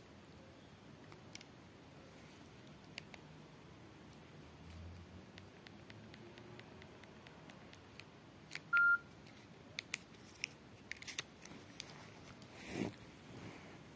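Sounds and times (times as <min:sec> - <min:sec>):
short electronic beep: 0:08.8 - 0:09.0.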